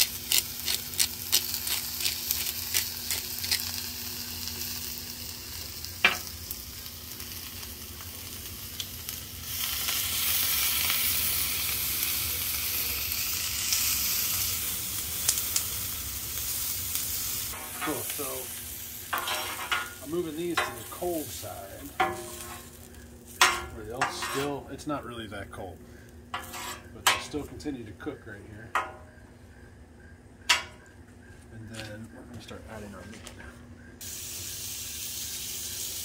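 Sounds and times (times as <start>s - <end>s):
spatula turning vegetables: 0.0s - 5.1s, 5.8s - 24.8s, 26.3s - 27.7s
vegetables sizzling in oil: 0.0s - 24.4s, 34.0s - 36.0s.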